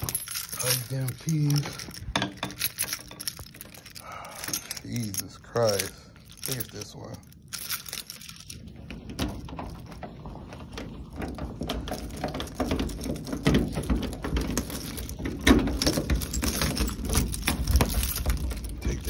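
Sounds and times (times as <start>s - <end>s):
keys jangling: 0.0s - 8.8s, 11.8s - 19.0s
key turning in lock: 0.0s - 10.0s, 11.2s - 19.0s.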